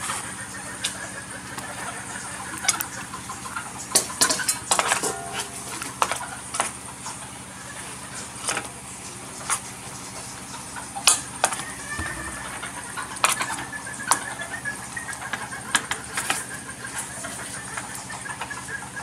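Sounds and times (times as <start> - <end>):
steady low hum: 11.8 - 13.8.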